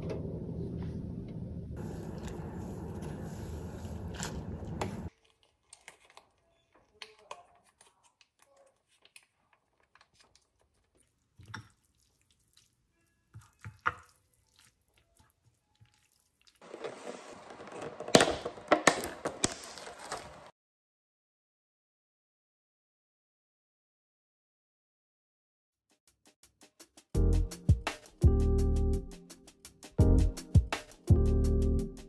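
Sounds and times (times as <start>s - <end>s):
chopsticks mixing noodles in bowl: 1.8s - 17.2s
plastic container crackling open: 16.6s - 20.5s.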